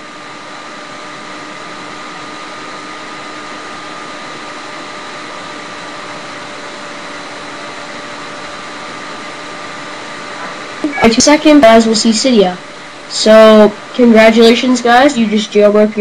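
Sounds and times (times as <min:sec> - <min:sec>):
thin high whine: 0:00.0 - 0:16.0.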